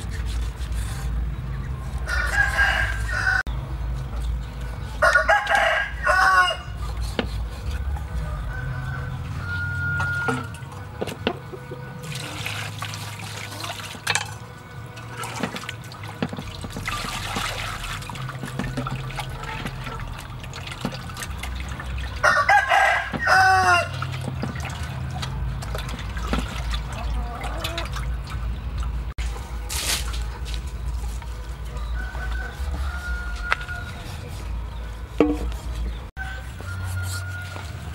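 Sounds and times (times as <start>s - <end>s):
rooster crowing: 2.0s - 3.5s, 5.0s - 6.8s, 7.9s - 10.6s, 22.2s - 24.0s, 31.7s - 34.3s, 36.2s - 37.9s
water sloshing in metal basin: 6.7s - 37.9s.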